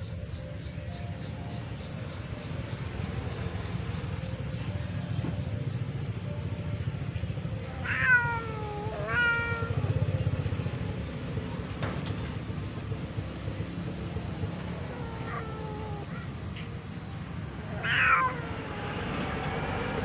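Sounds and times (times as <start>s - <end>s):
cat meowing: 7.6s - 9.9s, 14.6s - 16.3s, 17.6s - 19.3s.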